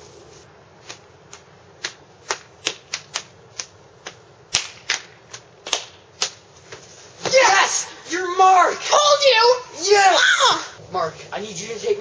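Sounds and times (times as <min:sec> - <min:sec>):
hands slapping and clapping: 0:00.9 - 0:07.4.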